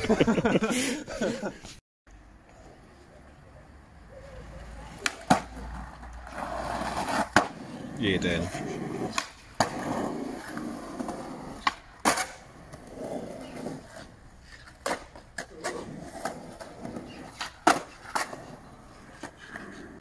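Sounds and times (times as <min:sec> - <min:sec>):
skateboard wheels rolling on concrete: 0:00.0 - 0:20.0
skateboard deck clacks: 0:04.9 - 0:07.6, 0:08.6 - 0:10.1, 0:14.6 - 0:19.8.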